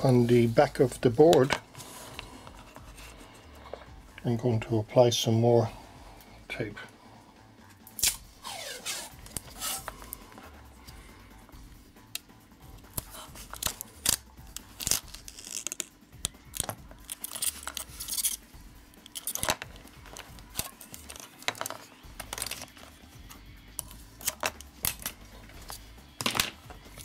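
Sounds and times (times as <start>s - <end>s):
adhesive tape rasping off roll: 8.0s - 9.9s, 12.9s - 18.4s.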